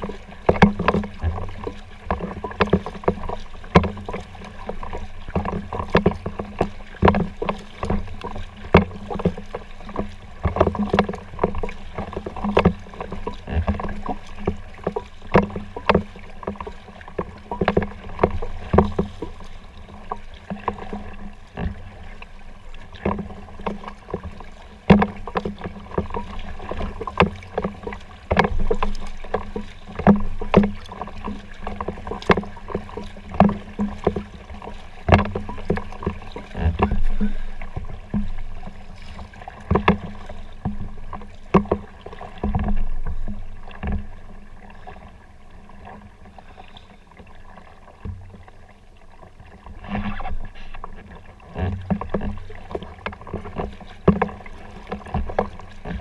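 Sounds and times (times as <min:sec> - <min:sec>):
paddle strokes splashing: 0:00.0 - 0:56.0
sharp knocks and clicks: 0:00.4 - 0:19.4, 0:24.9 - 0:38.4, 0:39.7 - 0:44.1.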